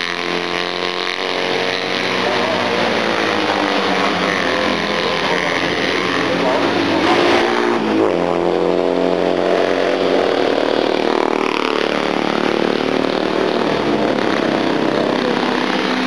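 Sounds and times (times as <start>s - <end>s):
race car engine at speed: 0.0s - 16.0s.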